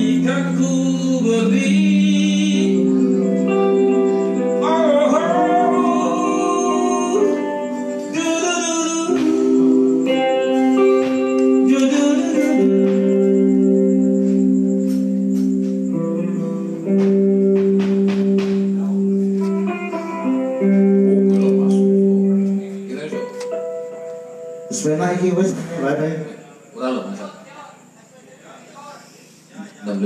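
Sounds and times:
band music over loudspeakers: 0:00.0 - 0:23.4
guitar: 0:00.0 - 0:30.0
sharp drum hits: 0:17.0 - 0:19.0.

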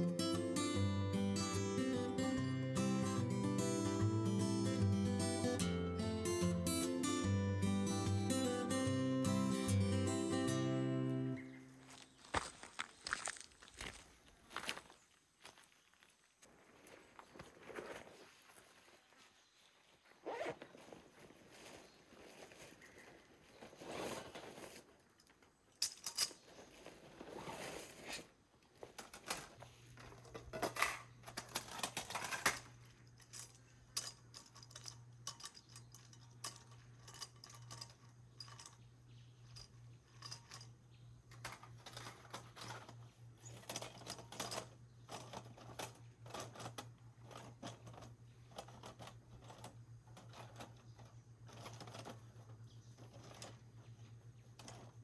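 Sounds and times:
camping gear clicks and rustles: 0:11.4 - 0:55.0.

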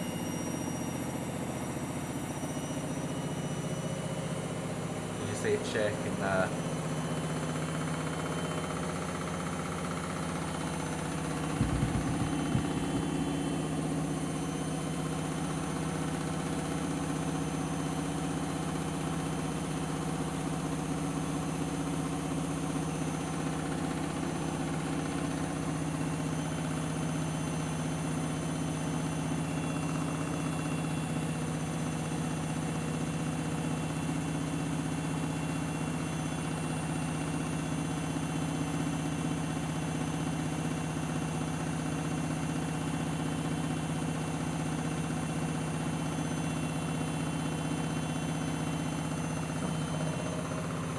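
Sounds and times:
washing machine spinning: 0:00.0 - 0:50.9
washing machine knocking: 0:10.1 - 0:13.2.

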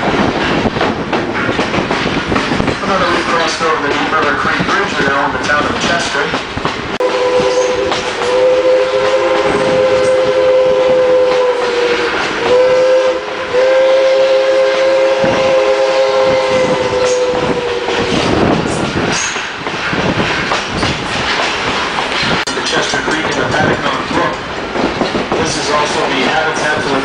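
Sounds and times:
train wheels clattering over rail joints: 0:00.0 - 0:10.2, 0:16.8 - 0:27.0
steam locomotive chime whistle: 0:07.0 - 0:17.9.

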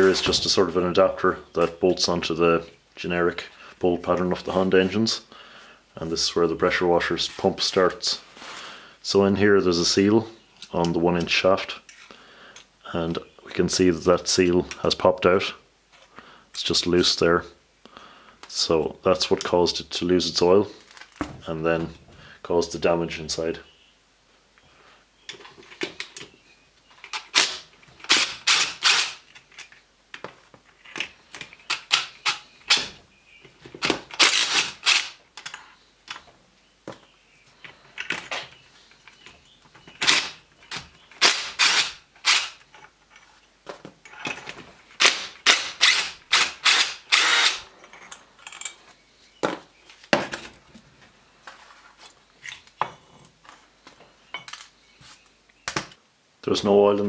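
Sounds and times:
impact driver bursts: 0:27.3 - 0:29.2, 0:33.9 - 0:35.2, 0:41.2 - 0:42.6, 0:45.0 - 0:47.6.

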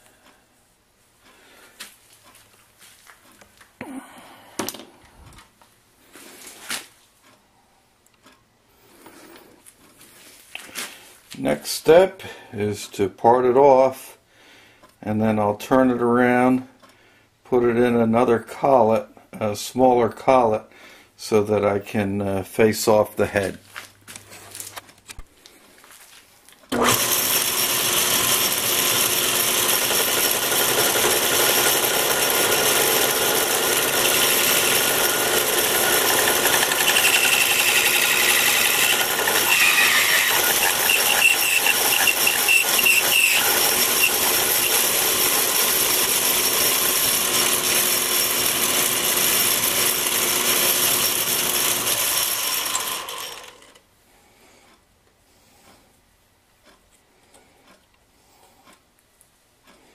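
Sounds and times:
lathe running: 0:26.7 - 0:53.8
lathe running down: 0:26.7 - 0:53.8
parting tool cutting metal: 0:26.7 - 0:53.8.

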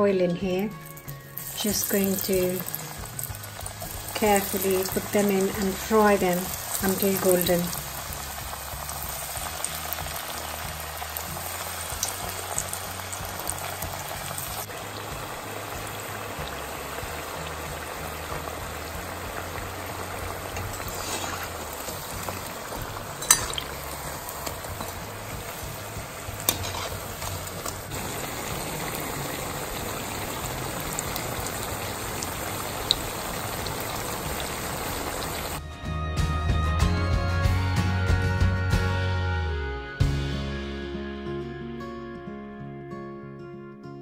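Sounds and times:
background music: 0:00.0 - 0:44.0
oil sizzling hiss: 0:00.8 - 0:35.6
metal spoon clinking on pan: 0:23.2 - 0:23.7.

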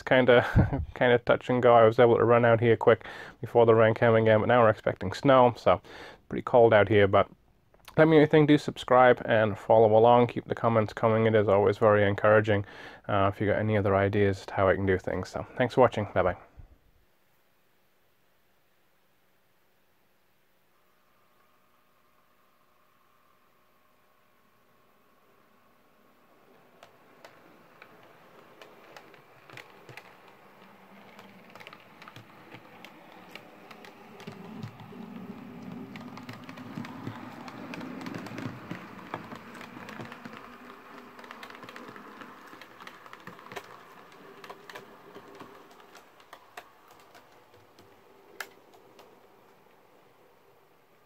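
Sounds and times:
model train motor hum: 0:24.4 - 0:46.6
wheels clicking over rail joints: 0:26.0 - 0:51.0.

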